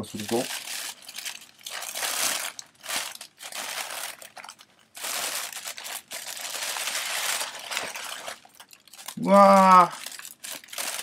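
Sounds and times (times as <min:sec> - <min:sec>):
wrapping paper crinkling: 0:00.0 - 0:11.0.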